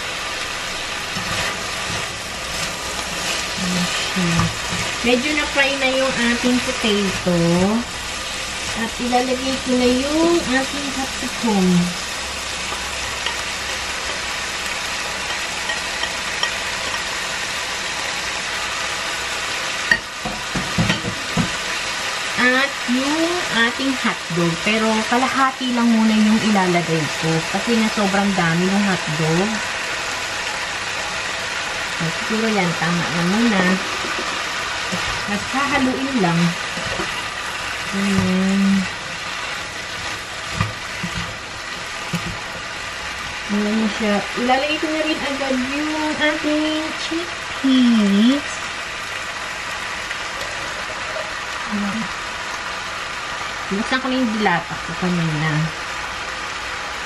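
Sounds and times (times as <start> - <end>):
vegetables sizzling in a frying pan: 0.0 - 57.0.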